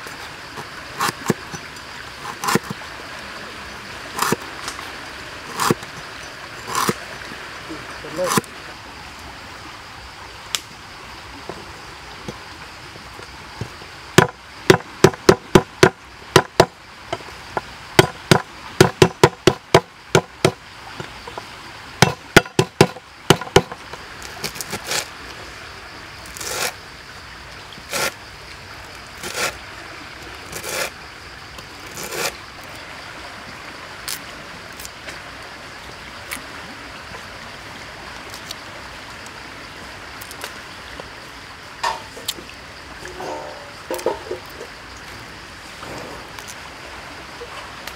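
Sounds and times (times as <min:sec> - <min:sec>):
faint hiss: 0:00.0 - 0:15.0, 0:19.9 - 0:47.9
cleaver chopping on wooden board: 0:02.4 - 0:02.7, 0:04.2 - 0:04.4, 0:05.5 - 0:05.8, 0:06.7 - 0:07.0, 0:14.2 - 0:16.8, 0:18.0 - 0:20.6, 0:22.0 - 0:23.8.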